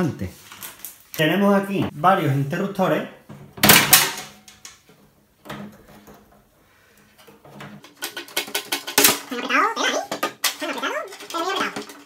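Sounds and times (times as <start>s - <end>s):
sheet metal clatter: 3.3s - 4.8s, 7.2s - 12.0s.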